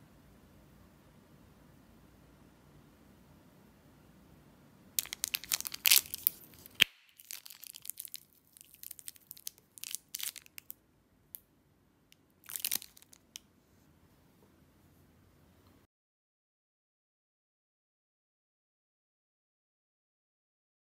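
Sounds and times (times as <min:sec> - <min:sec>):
plastic wrapper crinkling: 0:05.0 - 0:10.7, 0:12.4 - 0:13.4.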